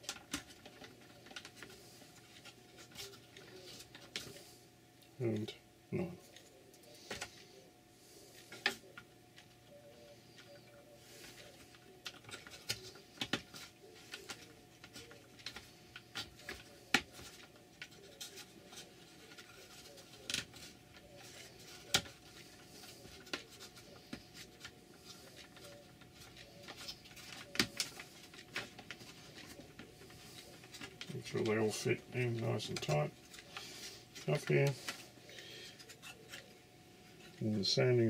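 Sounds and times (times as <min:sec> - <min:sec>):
faint steady hum: 0:00.0 - 0:38.0.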